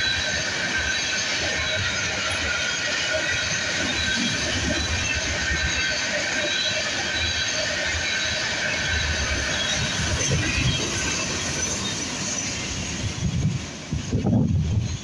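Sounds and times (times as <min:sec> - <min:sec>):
high wheel squeal: 0:00.0 - 0:13.4
train wheels rumbling on rails: 0:00.0 - 0:15.0.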